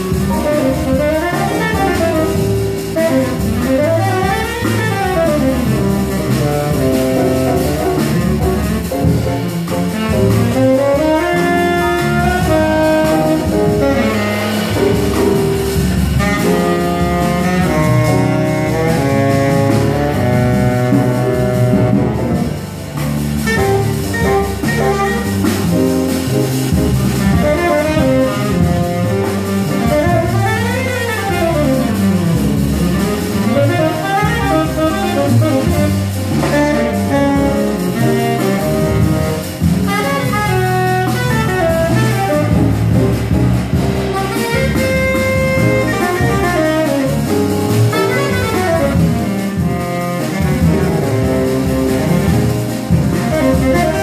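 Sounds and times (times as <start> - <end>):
double bass: 0.0 - 54.0
drum kit: 0.0 - 54.0
tenor saxophone solo: 0.3 - 22.8, 23.4 - 54.0.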